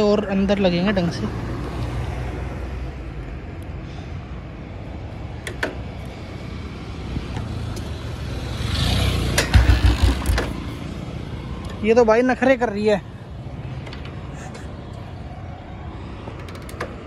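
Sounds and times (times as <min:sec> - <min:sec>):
motorcycle engine low rumble: 0:07.0 - 0:11.5.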